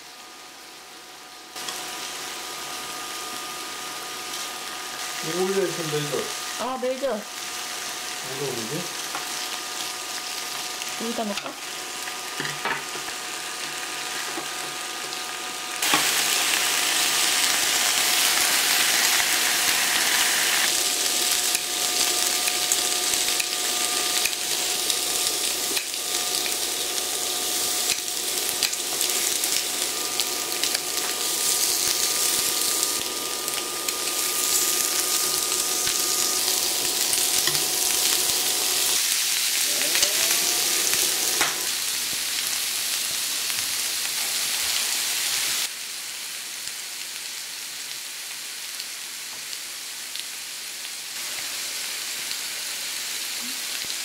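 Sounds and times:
meat sizzling on grill plate: 0.0 - 54.0.

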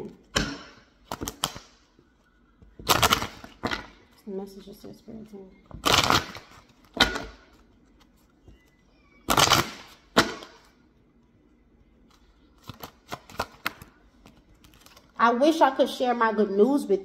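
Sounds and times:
cards snapping: 0.4 - 1.8, 2.8 - 3.9, 12.6 - 15.1
cards riffling: 1.0 - 2.0, 2.8 - 4.0, 12.0 - 15.2.

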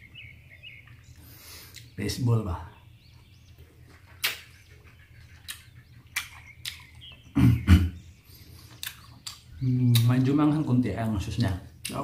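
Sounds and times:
chewing with wet clicks: 0.8 - 2.0, 3.1 - 7.4, 8.2 - 10.4, 11.0 - 12.0.

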